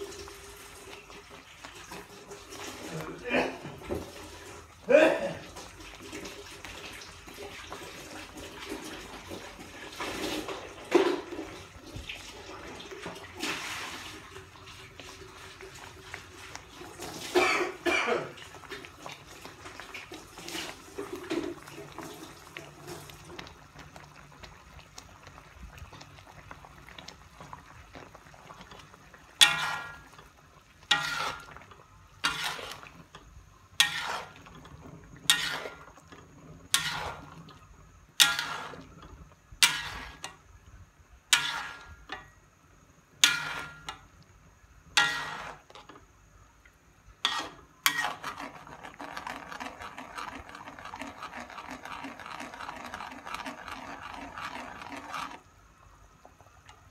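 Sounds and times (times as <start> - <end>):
metal ladle scraping metal pan: 28.6 - 40.4, 41.3 - 42.4, 43.2 - 44.1, 44.9 - 46.0, 47.2 - 55.4.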